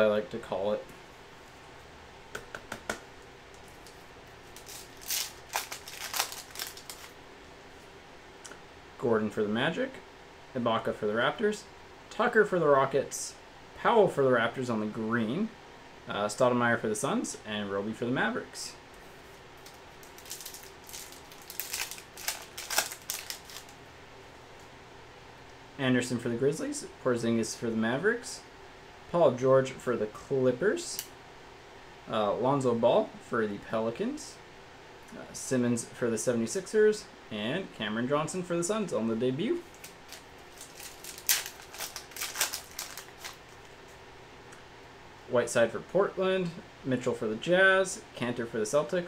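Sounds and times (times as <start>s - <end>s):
cards flicked by hand: 2.3s - 3.0s
cards rustling and sliding: 3.6s - 7.2s, 19.0s - 23.7s, 39.7s - 44.0s.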